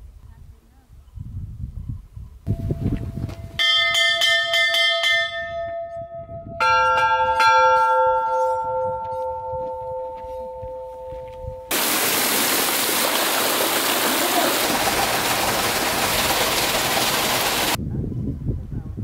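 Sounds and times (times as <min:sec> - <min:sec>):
lower-pitched bell ringing: 0:02.5 - 0:11.7.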